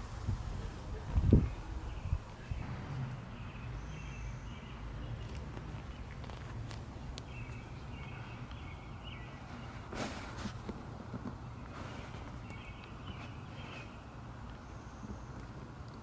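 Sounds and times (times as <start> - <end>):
small birds chirping: 0.9 - 16.0
brief rustle: 9.7 - 14.0.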